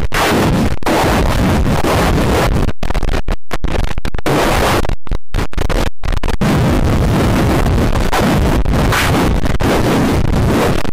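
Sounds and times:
harsh distorted digital noise: 0.0s - 10.9s.

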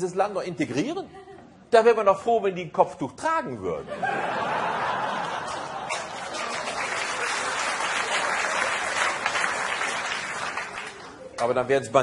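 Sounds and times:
audience laughing: 3.8s - 9.3s
audience applauding: 4.9s - 11.4s.

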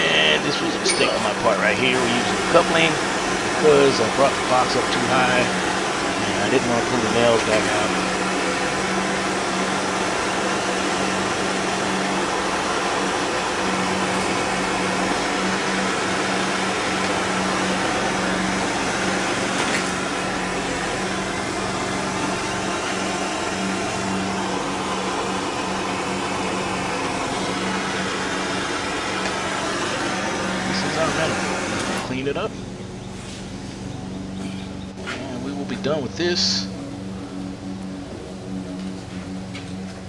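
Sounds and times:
machine drone with hiss and hum: 0.0s - 40.0s.

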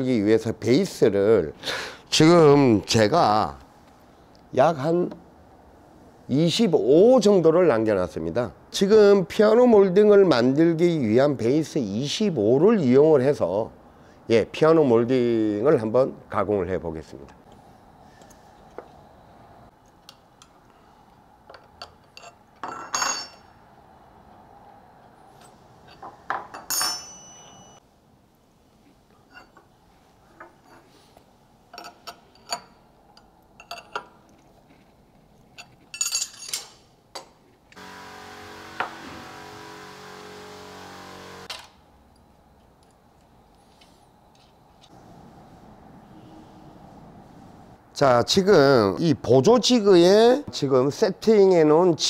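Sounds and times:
wrench clinking on metal nut: 25.9s - 27.8s
steady machine running: 37.8s - 41.5s.

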